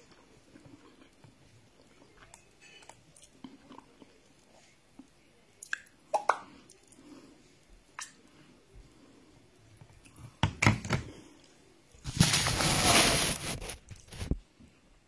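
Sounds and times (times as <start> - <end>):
person chewing food: 0.0 - 5.1.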